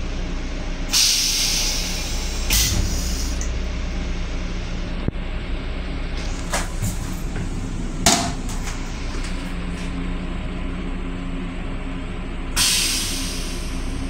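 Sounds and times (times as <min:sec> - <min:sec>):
railcar hum: 0:00.0 - 0:14.0
toilet seat knocking: 0:07.4 - 0:08.7.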